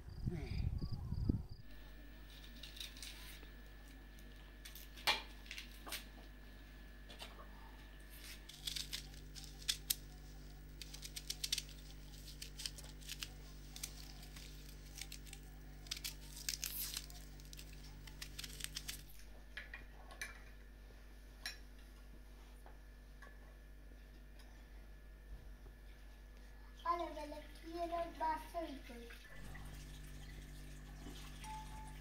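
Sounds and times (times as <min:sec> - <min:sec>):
knife cutting onion crackles: 0:08.1 - 0:19.3.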